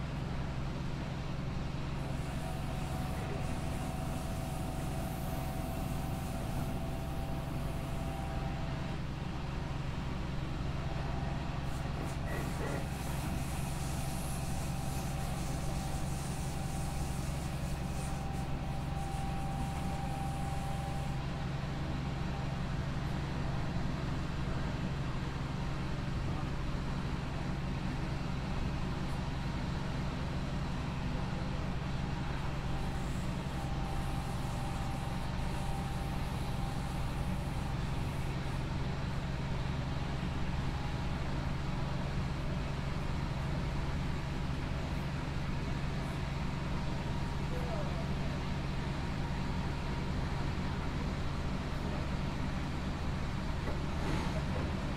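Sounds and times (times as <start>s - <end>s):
train interior drone: 0.0s - 54.9s
faint high whine: 2.0s - 9.2s, 13.3s - 21.5s, 32.4s - 38.6s
hiss: 11.7s - 21.1s.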